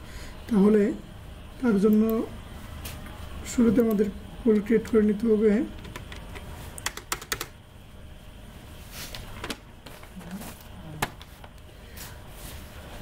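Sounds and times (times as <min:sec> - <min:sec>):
keyboard keystrokes clicking: 0:05.8 - 0:07.6.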